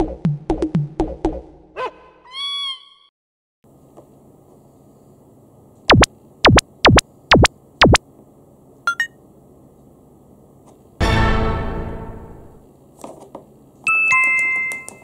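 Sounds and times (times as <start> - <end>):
short double blip: 5.9 - 8.0
synthetic cartoon swoops: 5.9 - 8.0.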